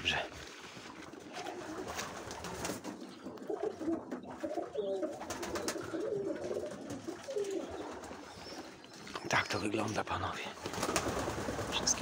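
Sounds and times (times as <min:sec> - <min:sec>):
pigeons cooing: 0:01.1 - 0:09.9.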